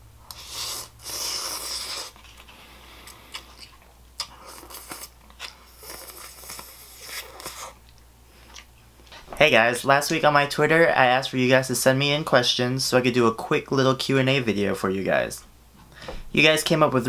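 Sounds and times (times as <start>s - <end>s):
slurping noodles: 0.3s - 7.8s
chewing: 0.3s - 9.2s.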